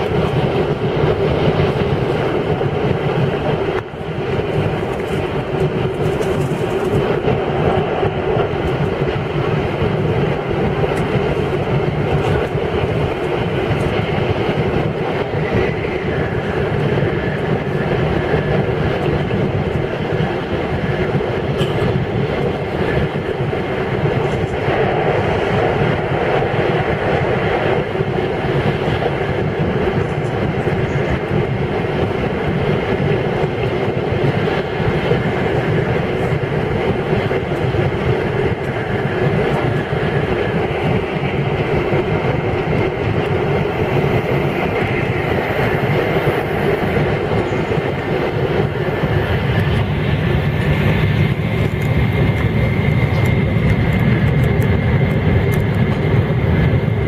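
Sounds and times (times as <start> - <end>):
train cabin rumble and rushing: 0.0 - 57.0.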